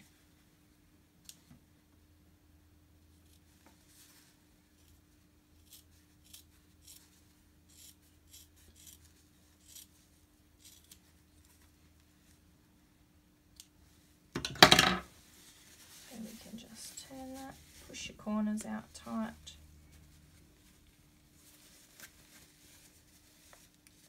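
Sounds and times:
scissors clattering on table: 14.4 - 15.1
fabric rustling and scratching: 15.2 - 18.2, 19.0 - 24.0.

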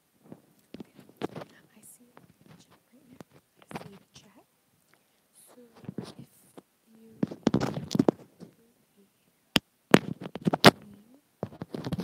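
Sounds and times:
fingers rubbing and tapping mic: 0.6 - 4.4, 5.8 - 6.6, 7.2 - 8.6, 10.0 - 12.0.

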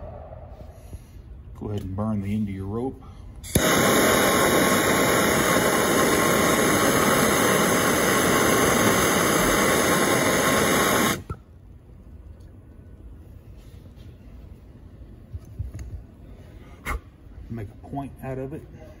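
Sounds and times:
gas torch hissing: 3.4 - 11.5.

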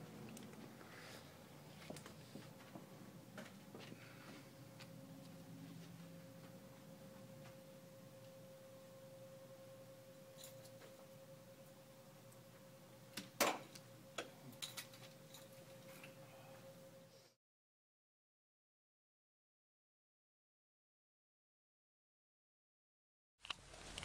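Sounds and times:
steady thin hum: 0.0 - 17.4.

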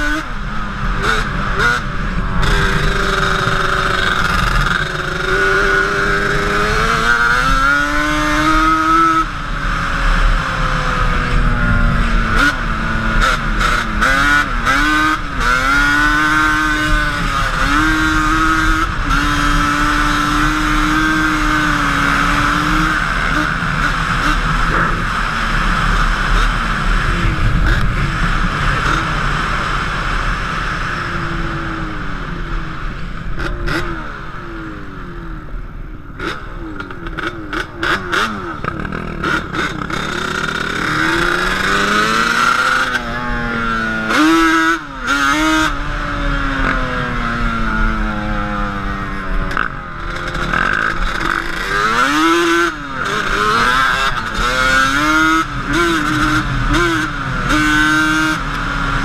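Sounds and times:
quad engine revving: 0.0 - 31.8, 36.1 - 59.0
riding noise rush: 36.8 - 44.2.

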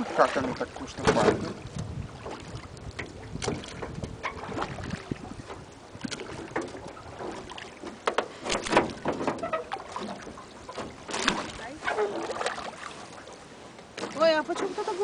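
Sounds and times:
oars splashing in water: 0.0 - 15.0
wind on microphone: 0.4 - 7.7
knocks on metal boat: 1.0 - 1.6.

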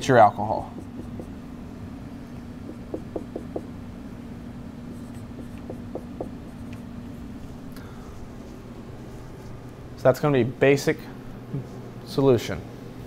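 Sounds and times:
marker squeaking on whiteboard: 0.8 - 1.3.

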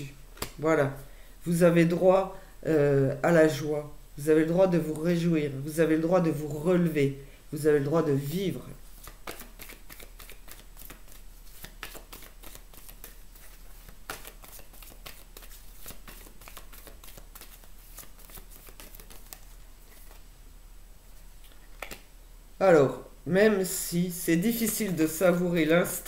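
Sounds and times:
cards being shuffled: 0.4 - 0.6, 8.9 - 20.3, 21.4 - 22.1, 24.5 - 26.0.

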